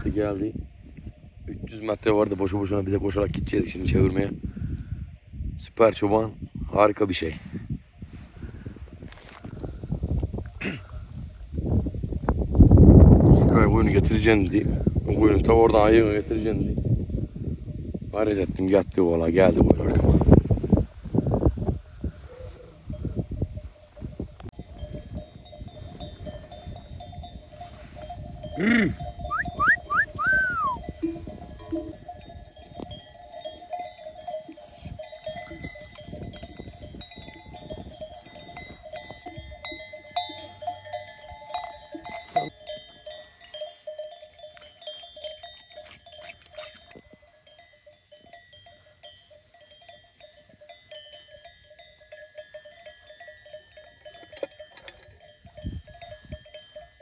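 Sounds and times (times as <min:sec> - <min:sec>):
sheep bells clanking: 0:13.3 - 0:16.7, 0:22.2 - 0:57.0.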